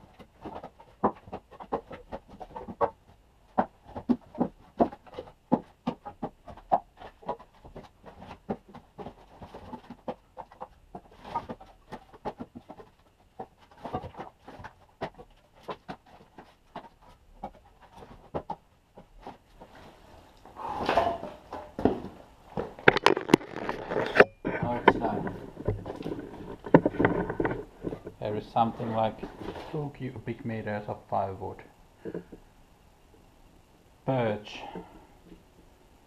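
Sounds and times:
firewood clacking: 0:20.4 - 0:28.3.

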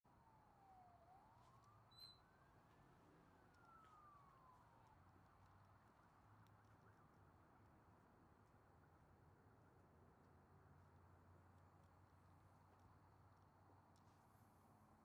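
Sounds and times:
faint siren wailing: 0:00.1 - 0:07.7.

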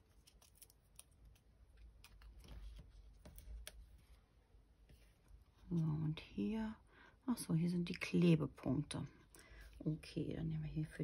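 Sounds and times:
peeling foam pads rustling: 0:00.0 - 0:05.8.

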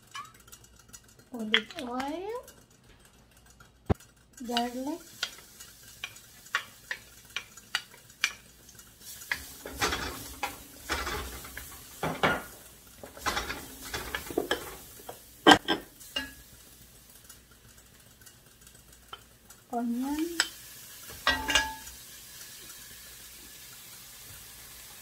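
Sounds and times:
spatula tapping wok: 0:03.9 - 0:16.5, 0:20.2 - 0:22.0
garlic sizzling in oil: 0:03.9 - 0:25.0
spatula scraping wok: 0:04.4 - 0:16.4.

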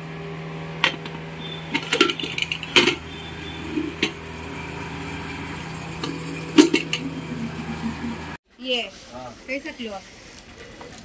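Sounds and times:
steady low hum: 0:00.0 - 0:08.4
metal cookware clanking: 0:00.8 - 0:08.3.

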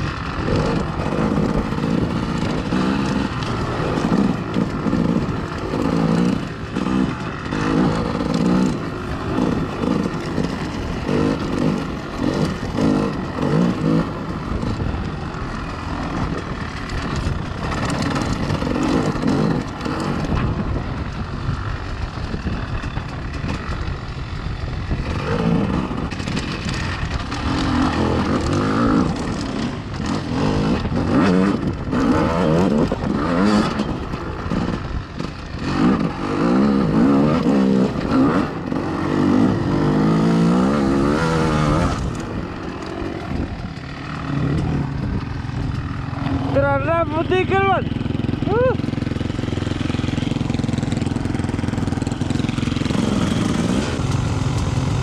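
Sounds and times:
off-road vehicle engine revving: 0:00.0 - 0:21.1, 0:24.9 - 0:55.0.

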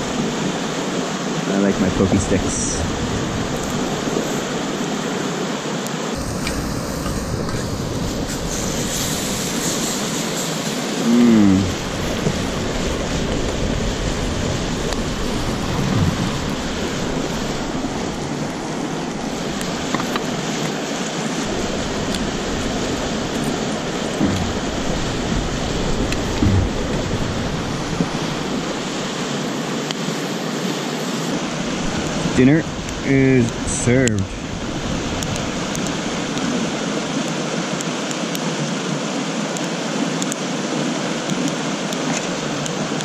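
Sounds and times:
steak sizzling over campfire: 0:00.0 - 0:43.0
faint fire pops: 0:06.2 - 0:10.7.

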